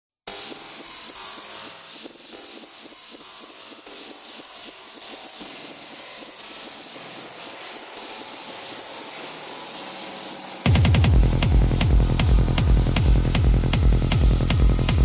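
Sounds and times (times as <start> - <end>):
kick drum and bass: 10.6 - 15.0.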